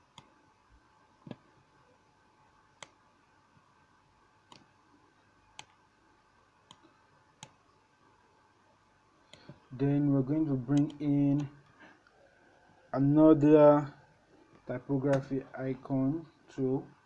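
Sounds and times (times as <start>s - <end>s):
computer mouse clicks: 4.5s - 4.7s, 10.7s - 11.5s.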